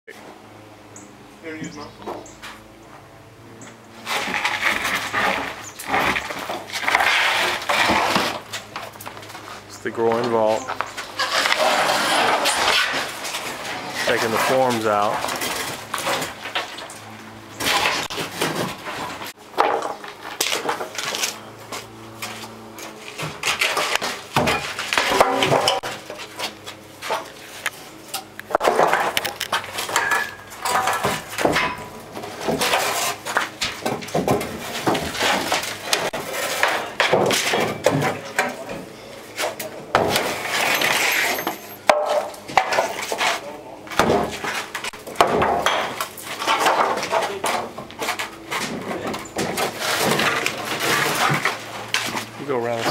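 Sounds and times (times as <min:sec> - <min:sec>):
wooden boards knocking and clattering: 0:17.6 - 0:21.3, 0:22.2 - 0:27.4, 0:28.4 - 0:52.9.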